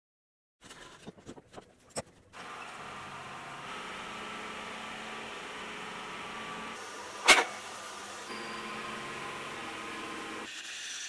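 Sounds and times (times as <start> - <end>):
metal lathe running: 2.4 - 10.8.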